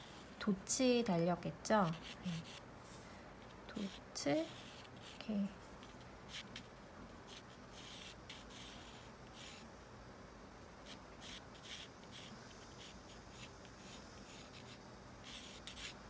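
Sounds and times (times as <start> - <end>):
pencil scratching on paper: 1.8 - 2.6, 3.7 - 5.3, 7.3 - 9.6, 10.8 - 16.0.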